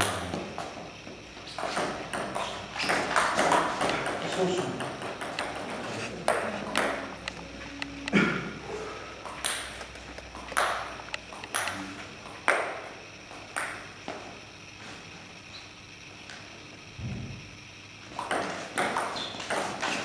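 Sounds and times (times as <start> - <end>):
table tennis ball bouncing: 0.0 - 0.8, 1.5 - 7.4, 9.2 - 14.2, 18.1 - 20.0.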